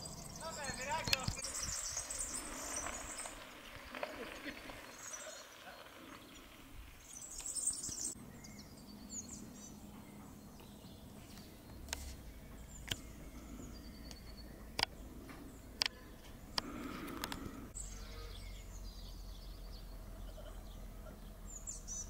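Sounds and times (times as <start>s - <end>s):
bird trill: 0.0s - 3.5s
small birds chirping and singing: 0.0s - 22.0s
sharp clicks: 1.0s - 1.4s, 14.1s - 15.0s.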